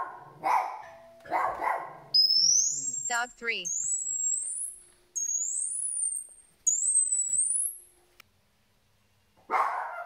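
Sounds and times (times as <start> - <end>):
dogs barking: 0.0 - 2.1, 9.5 - 10.0
high-pitched electronic sweeps: 2.2 - 7.8.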